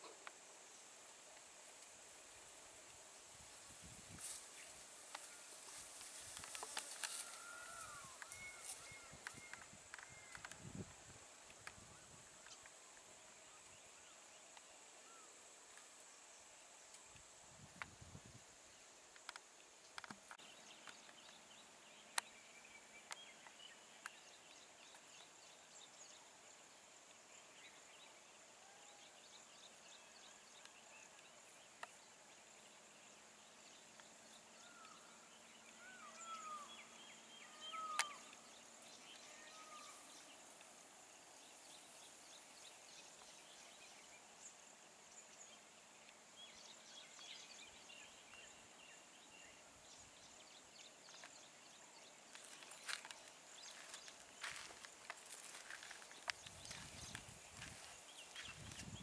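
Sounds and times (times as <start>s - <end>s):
whistled bird calls: 35.8s - 38.3s.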